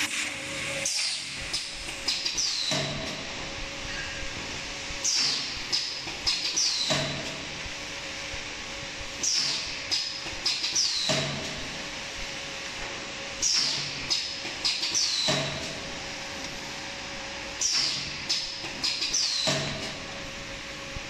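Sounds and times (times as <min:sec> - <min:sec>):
steady machine hum: 0:00.0 - 0:21.0
machine clacks and knocks: 0:09.3 - 0:11.6, 0:17.6 - 0:20.0.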